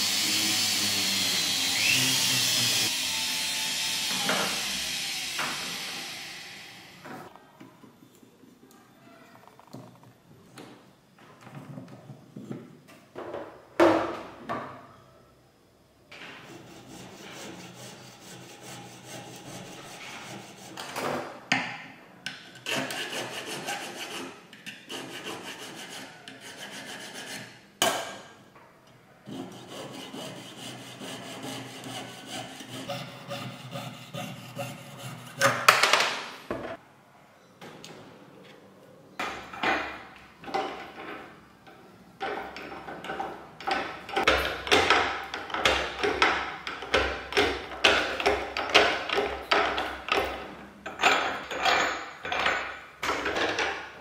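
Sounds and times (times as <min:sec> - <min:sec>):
file scraping on metal: 0:16.2 - 0:20.9, 0:22.6 - 0:27.6, 0:29.3 - 0:35.7.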